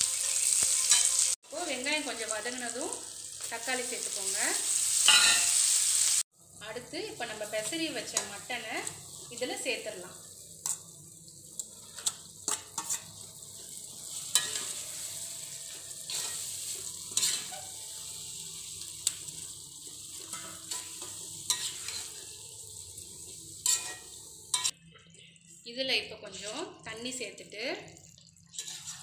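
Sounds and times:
metal spoon scraping a pan: 0.0s - 1.4s, 10.5s - 22.4s, 23.2s - 24.8s, 28.4s - 29.0s
meat sizzling in a pan: 0.0s - 24.8s, 28.0s - 29.0s.

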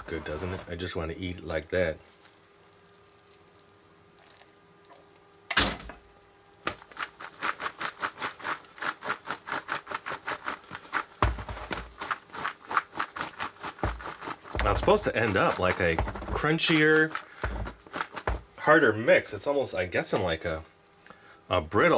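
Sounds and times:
popcorn stirred in a bowl: 0.0s - 1.0s, 6.8s - 18.6s.

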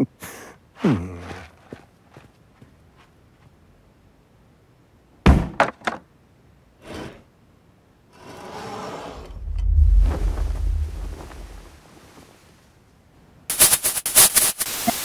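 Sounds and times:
deep rumble: 9.2s - 12.0s.

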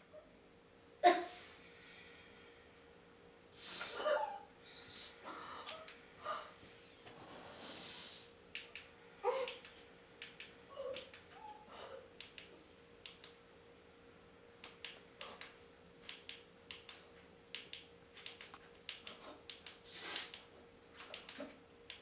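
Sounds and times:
sharp clicks: 8.5s - 8.9s, 9.5s - 11.4s, 12.2s - 13.4s, 14.6s - 22.0s.

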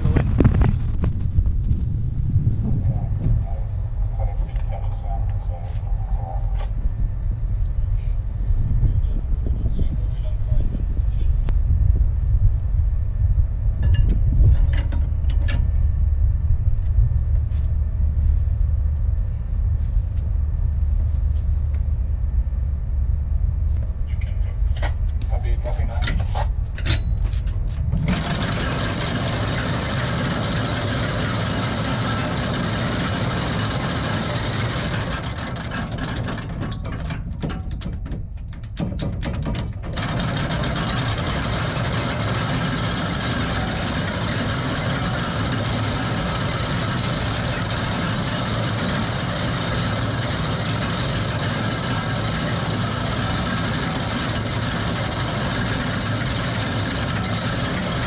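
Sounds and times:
low hum: 0.0s - 58.0s
anchor chain running out: 39.6s - 58.0s.

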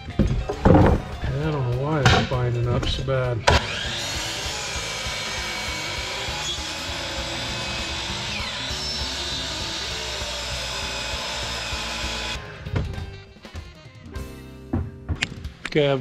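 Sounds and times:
miter saw cutting wood: 3.5s - 12.6s.

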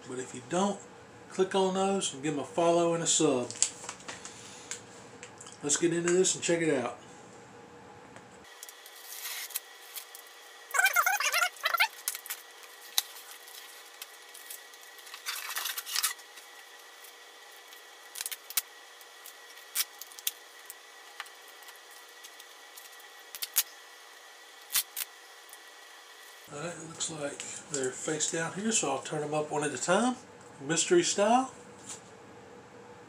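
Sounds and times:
package wrapping cutting and tearing: 8.6s - 10.2s, 10.8s - 16.5s, 17.6s - 23.7s, 24.6s - 25.1s.

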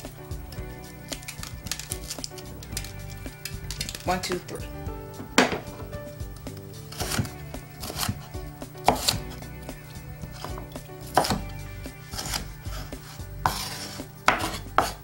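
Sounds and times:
knife chopping on wooden board: 5.2s - 6.0s, 6.9s - 9.4s, 10.4s - 15.0s.

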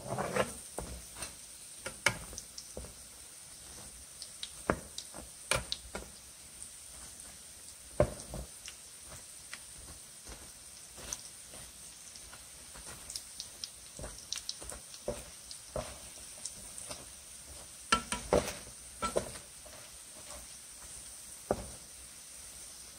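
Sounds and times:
metal spatula scraping pan: 0.0s - 1.4s, 17.9s - 20.5s
oil crackling and popping: 0.4s - 22.9s.

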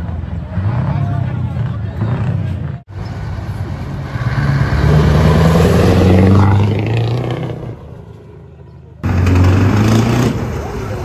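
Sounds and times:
truck diesel engine revving: 3.8s - 7.8s, 9.0s - 11.0s.

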